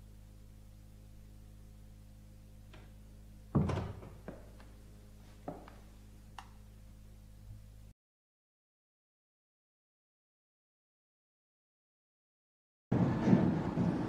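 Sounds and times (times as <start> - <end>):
steady low hum: 0.0 - 7.9
heavy thunk: 3.5 - 4.4.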